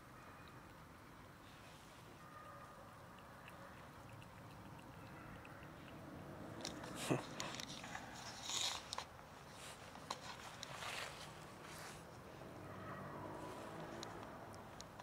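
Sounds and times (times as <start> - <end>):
cat chewing wet food: 0.4 - 10.8.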